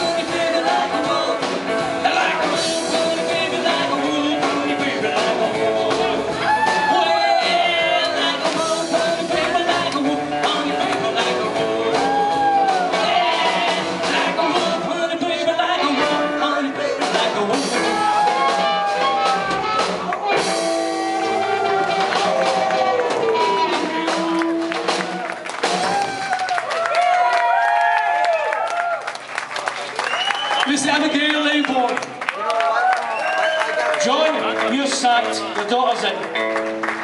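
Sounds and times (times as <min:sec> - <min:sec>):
upright bass: 0:00.0 - 0:26.3
harmonica wailing: 0:11.9 - 0:14.0.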